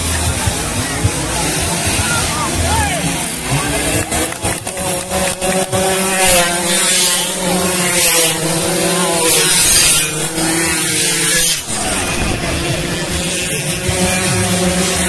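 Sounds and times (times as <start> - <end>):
motor scooters revving high: 0.0 - 15.0.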